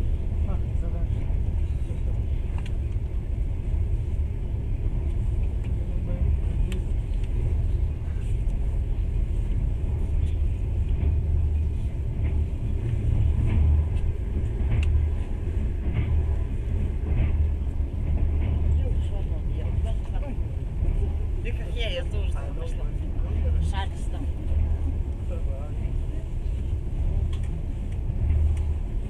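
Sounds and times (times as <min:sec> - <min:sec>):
train rumbling: 0:00.0 - 0:29.0
light clicks and rattles: 0:01.5 - 0:03.2.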